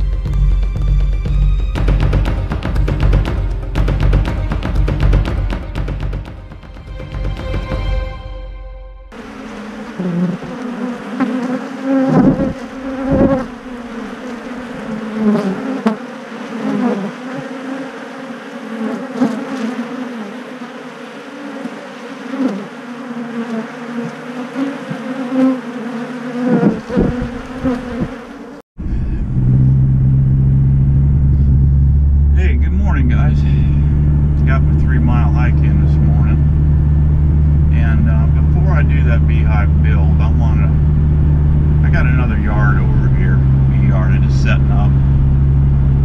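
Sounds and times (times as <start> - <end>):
honeybees buzzing: 9.1 - 28.6, 32.5 - 45.8
truck engine rumbling in cab: 28.8 - 46.0.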